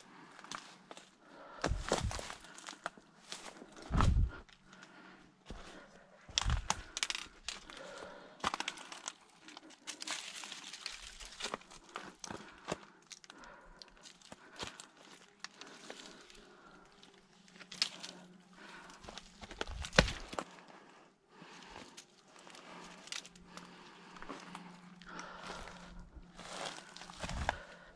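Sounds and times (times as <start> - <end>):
twigs crackling and snapping: 1.8 - 5.6, 6.3 - 20.8, 21.4 - 27.9
footsteps crunching over dry leaves: 25.1 - 27.8.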